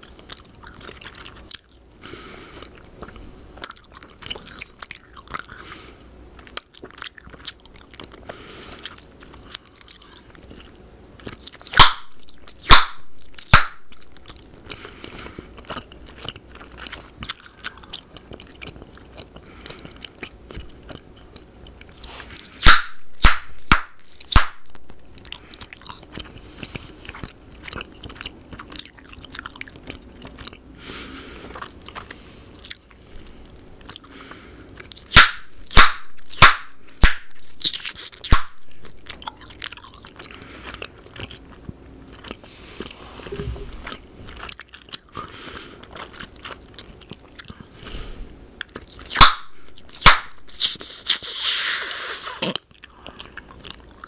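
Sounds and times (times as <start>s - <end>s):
wet gum chewing: 0.0s - 5.7s, 6.3s - 48.0s, 48.6s - 54.0s
gum snaps: 11.2s - 14.5s, 21.9s - 26.3s, 34.8s - 39.8s, 48.6s - 52.7s.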